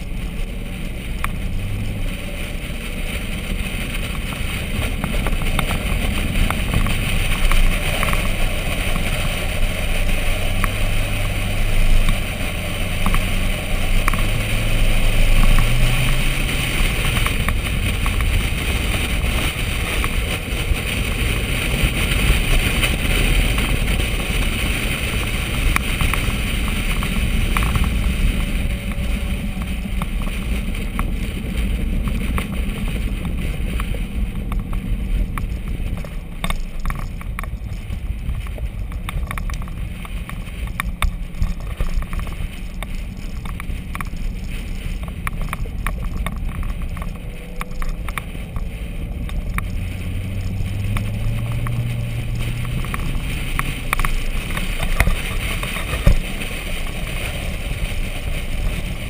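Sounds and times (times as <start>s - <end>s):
car engine running: 0.0s - 59.0s
wind and road rush: 0.0s - 59.0s.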